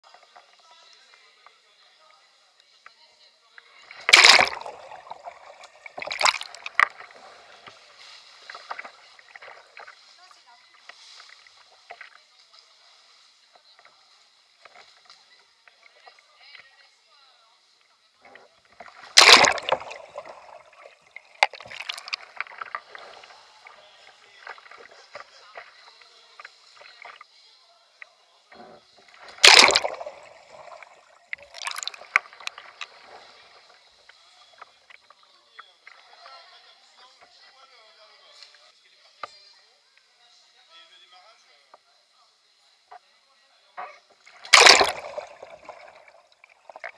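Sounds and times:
water splashing: 3.8s - 12.4s, 18.7s - 27.2s, 28.6s - 35.1s, 44.2s - 46.9s
water dripping: 3.9s - 10.1s, 18.8s - 27.2s, 29.1s - 34.2s, 44.3s - 46.9s.

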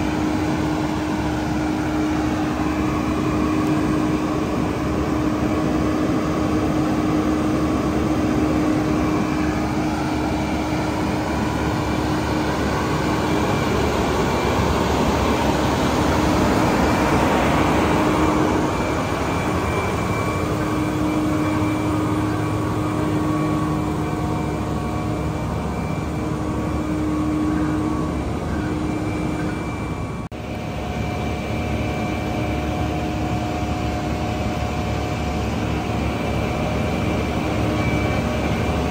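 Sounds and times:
diesel engine droning: 0.0s - 38.9s
pitched hum: 0.0s - 38.9s.

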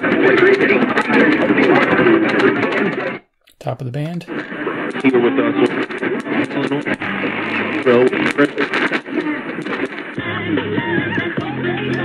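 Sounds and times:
music through small radio speaker: 6.6s - 12.0s.

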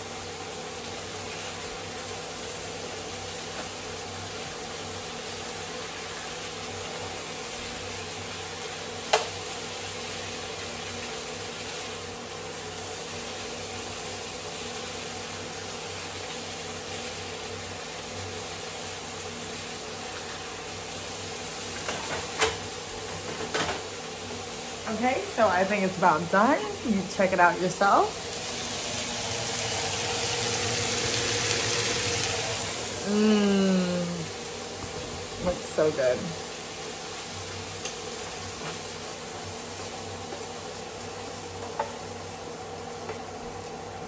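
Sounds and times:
chicken sizzling in oil: 0.0s - 44.0s.

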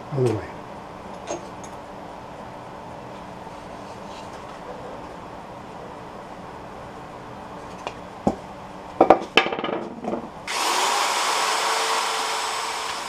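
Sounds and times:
drill sanding wood: 10.5s - 13.0s.

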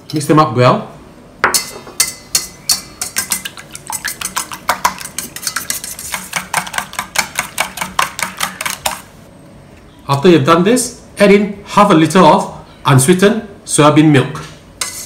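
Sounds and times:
whisk beating eggs in metal bowl: 2.0s - 9.1s.

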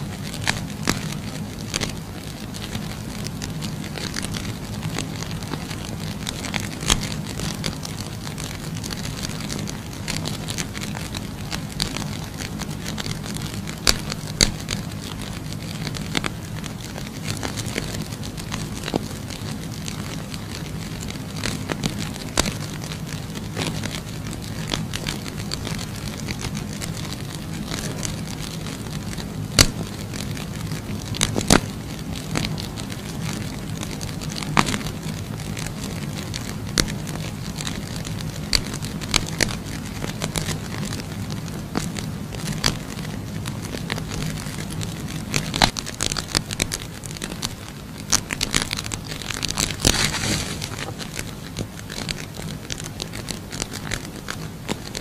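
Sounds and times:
burning matches crackling: 0.0s - 55.0s
steady low hum: 0.0s - 55.0s
sharp pops: 0.1s - 35.2s.

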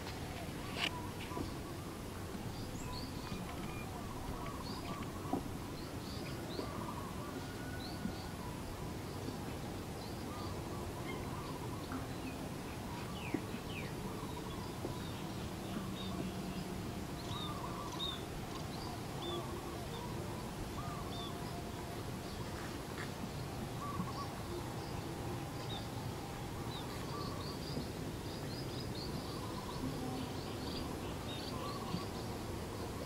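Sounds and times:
steady rustling noise: 0.0s - 6.5s
small birds chirping: 0.2s - 7.2s, 10.0s - 21.6s, 22.2s - 33.0s.

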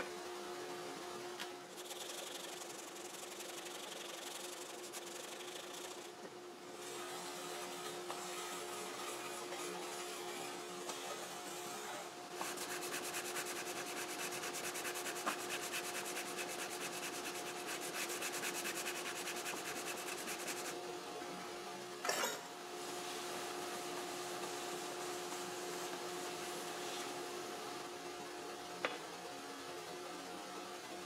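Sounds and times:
steady hum: 0.0s - 31.0s
sandpaper rubbing on wood: 1.8s - 6.2s, 11.6s - 20.8s.

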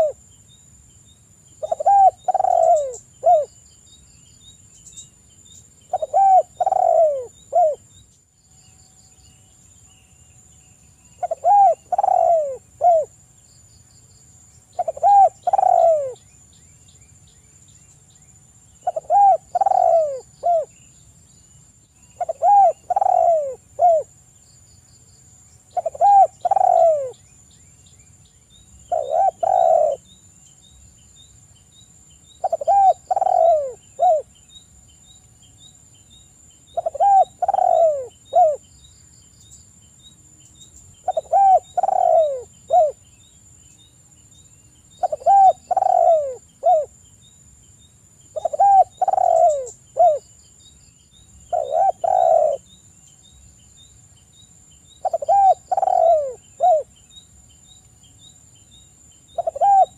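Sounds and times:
dove cooing: 0.0s - 0.2s, 1.6s - 3.5s, 5.9s - 7.8s, 11.2s - 13.1s, 14.8s - 16.2s, 18.8s - 20.7s, 22.2s - 24.1s, 25.7s - 27.2s, 28.9s - 30.0s, 32.4s - 34.3s, 36.7s - 38.6s, 41.0s - 43.0s, 45.0s - 46.9s, 48.3s - 50.2s, 51.5s - 52.7s, 55.0s - 56.9s, 59.4s - 59.9s.

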